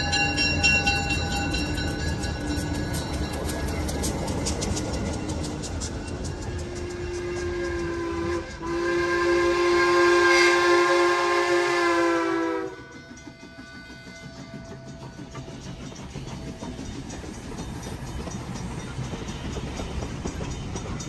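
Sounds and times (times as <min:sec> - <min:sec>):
train running noise: 0:00.0 - 0:21.0
steam locomotive whistle: 0:06.5 - 0:14.9.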